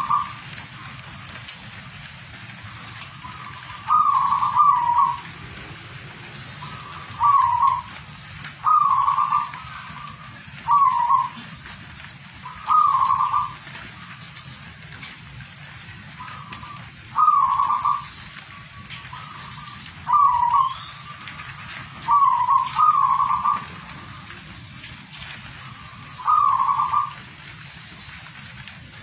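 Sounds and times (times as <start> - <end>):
dove cooing: 0.0 - 1.4, 2.6 - 11.7, 12.4 - 14.1, 16.2 - 24.6, 25.4 - 27.7
background hiss: 0.0 - 29.0.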